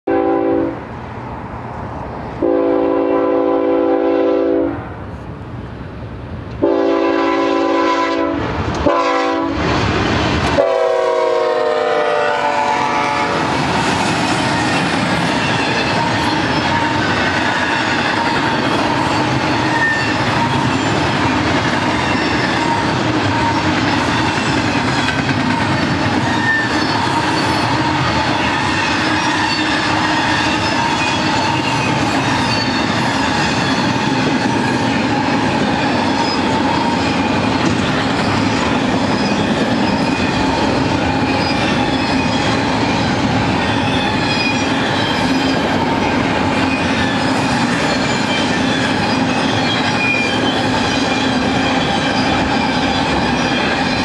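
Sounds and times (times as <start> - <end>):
locomotive air horn blasts: 0.1 - 0.8, 2.4 - 4.8, 6.6 - 9.6, 10.6 - 13.5
train cars clattering on rails: 13.4 - 54.0.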